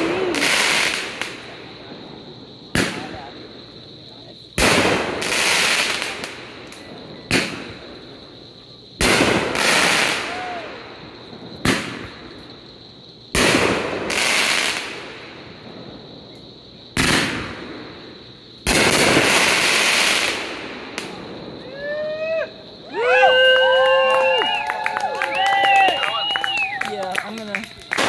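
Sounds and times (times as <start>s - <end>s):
crackling firework burst: 0.0s - 3.5s, 4.6s - 8.4s, 9.0s - 12.6s, 13.3s - 28.0s
fireworks bang: 0.0s - 3.5s, 4.6s - 8.4s, 9.0s - 12.6s, 13.3s - 22.3s.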